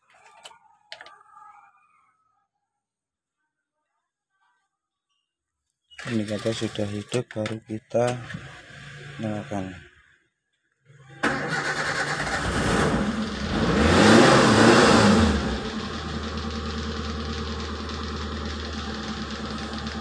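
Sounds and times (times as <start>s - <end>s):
car engine starting and idling: 6.0s - 9.8s, 11.2s - 20.0s.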